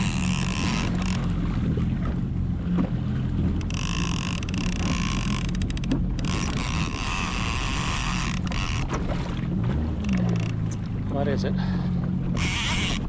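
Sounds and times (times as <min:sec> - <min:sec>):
fishing reel clicking: 0:00.0 - 0:01.4, 0:03.6 - 0:08.9, 0:10.0 - 0:10.9, 0:12.3 - 0:13.0
jet ski engine idling: 0:00.0 - 0:13.0.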